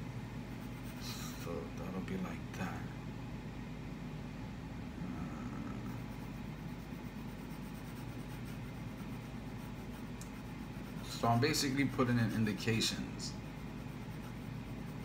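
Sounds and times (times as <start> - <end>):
low room hum: 0.0 - 15.0
pencil sketching on paper: 0.5 - 1.4, 5.8 - 15.0.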